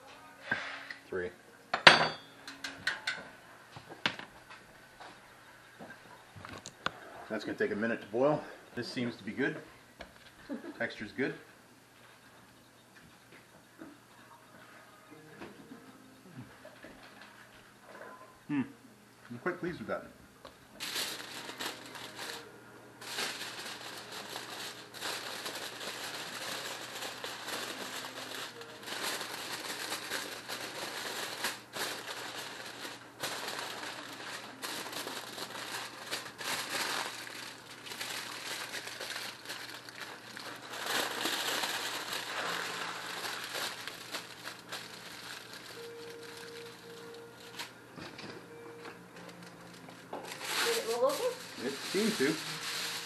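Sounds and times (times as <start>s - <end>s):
aluminium foil crinkling: 20.8s - 47.8s, 49.2s - 53.0s.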